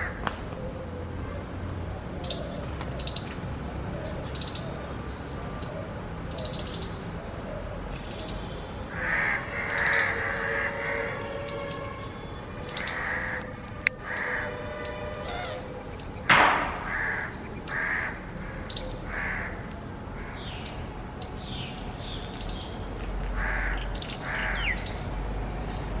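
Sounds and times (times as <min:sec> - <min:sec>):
birds calling: 0:00.0 - 0:26.0
louder knock: 0:16.3 - 0:17.0.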